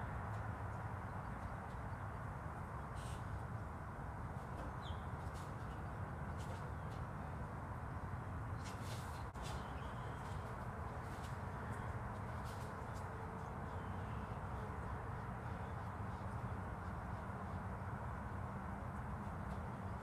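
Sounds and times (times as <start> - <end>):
faint bird chirp: 4.6 - 7.0, 8.6 - 10.5.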